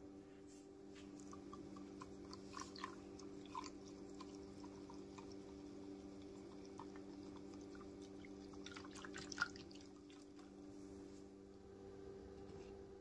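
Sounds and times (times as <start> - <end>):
liquid swishing: 1.1 - 11.1.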